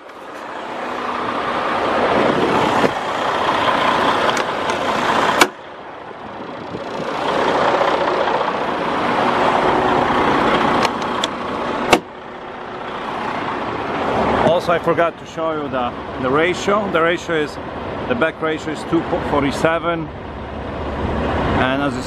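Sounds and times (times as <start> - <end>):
diesel truck accelerating: 0.0 - 22.0
transmission shift click: 10.8 - 12.1.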